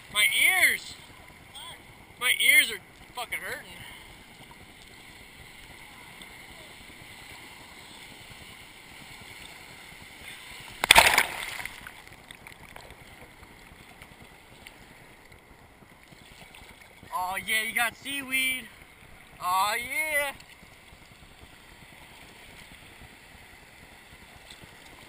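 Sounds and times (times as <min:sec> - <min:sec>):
ocean surf washing: 0:00.0 - 0:25.0
wave splashing over microphone: 0:10.7 - 0:12.9.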